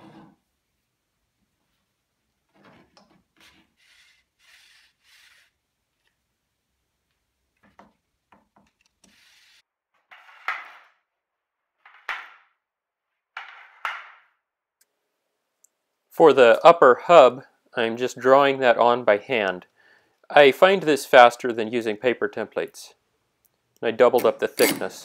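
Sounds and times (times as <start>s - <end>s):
wooden scraping strokes: 2.6s - 5.6s, 9.0s - 9.6s.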